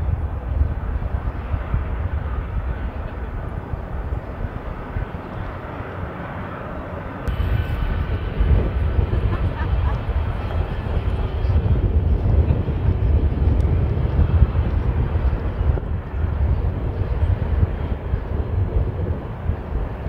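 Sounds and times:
jet engine rushing: 0:00.0 - 0:20.0.

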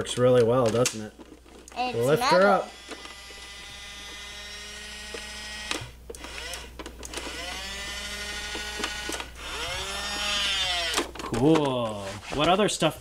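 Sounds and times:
toy electric motor whirring: 0:01.6 - 0:11.2.

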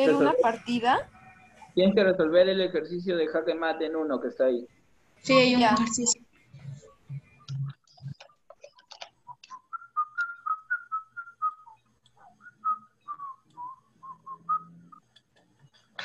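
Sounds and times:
clicks: 0:06.6 - 0:09.6
person whistling a tune: 0:09.3 - 0:15.0.

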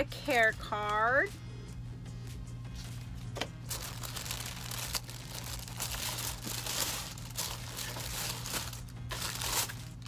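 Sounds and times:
tissue paper crinkling: 0:03.7 - 0:10.0.

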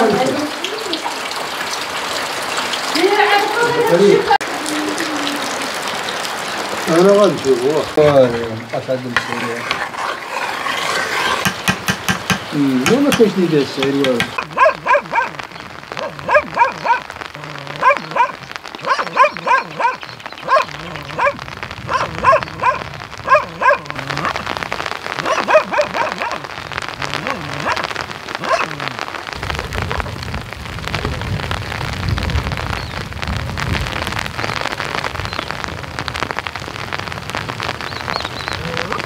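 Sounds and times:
rain pattering: 0:00.0 - 0:39.0
dog barking: 0:14.4 - 0:24.4, 0:25.2 - 0:26.5, 0:27.2 - 0:28.9.

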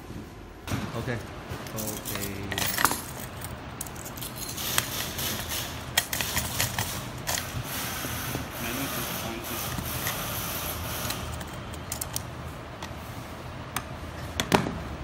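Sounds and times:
metal hardware clicking and scraping: 0:01.6 - 0:07.9, 0:08.7 - 0:12.3.

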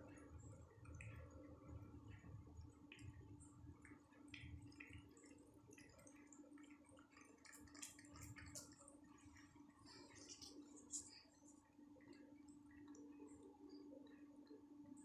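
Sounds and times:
faint steady hum: 0:00.0 - 0:15.0
cat licking wet smacking: 0:00.8 - 0:12.8.

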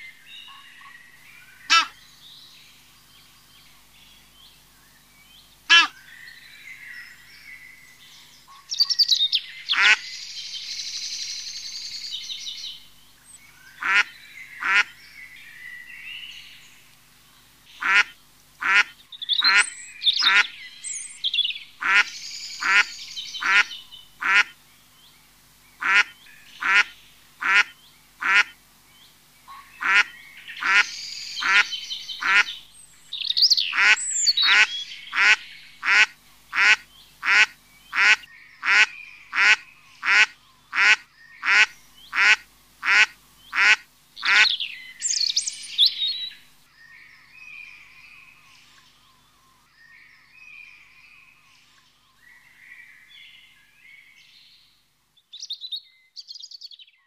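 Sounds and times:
waterbird calling: 0:00.0 - 0:02.0, 0:05.7 - 0:07.1, 0:08.5 - 0:10.1, 0:13.4 - 0:16.5, 0:17.7 - 0:24.6, 0:25.8 - 0:28.6, 0:29.4 - 0:46.4
birds chattering: 0:00.0 - 0:04.8, 0:05.4 - 0:46.6.

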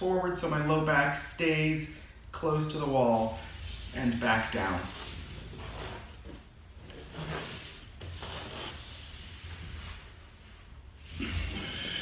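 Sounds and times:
sleeves rubbing on wall: 0:03.2 - 0:12.0.

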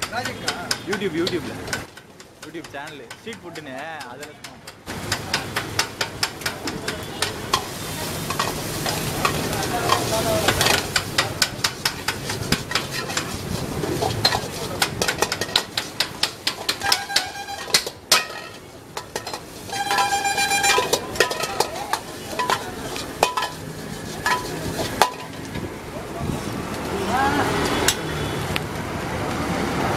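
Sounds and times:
steel ladle scraping a wok: 0:04.6 - 0:25.6
food sizzling: 0:04.9 - 0:28.7.

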